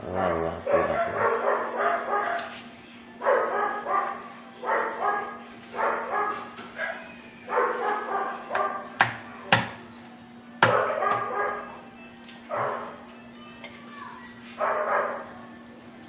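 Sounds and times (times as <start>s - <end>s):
dog barking: 0.6s - 2.6s, 3.2s - 8.9s, 10.6s - 11.7s, 12.5s - 12.9s, 14.6s - 15.3s.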